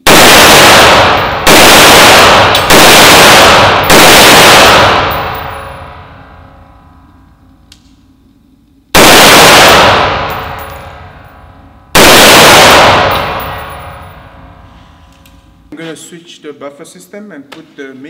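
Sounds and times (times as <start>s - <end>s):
rifle shots with echo: 0.0s - 6.4s, 9.0s - 11.2s, 11.9s - 14.5s.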